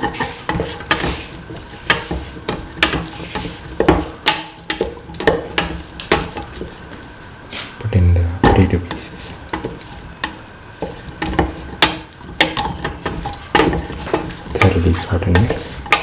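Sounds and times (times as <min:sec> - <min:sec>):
spatula scraping a steel pan: 0:00.0 - 0:06.6
food sizzling in oil: 0:00.0 - 0:16.0.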